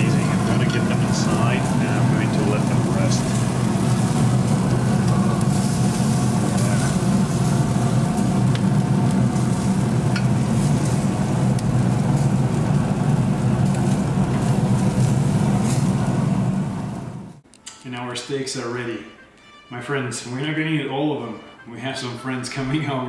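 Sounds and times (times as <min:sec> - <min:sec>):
steaks sizzling on a grill: 0:00.0 - 0:17.2
low hum: 0:00.0 - 0:17.4.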